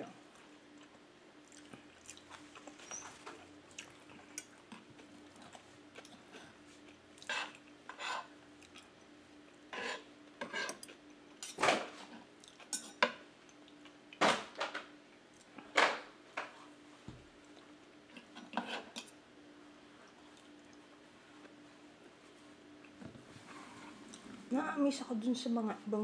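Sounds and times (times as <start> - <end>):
cutlery scraping wooden plate: 7.3 - 8.3, 9.7 - 11.8, 18.4 - 19.1.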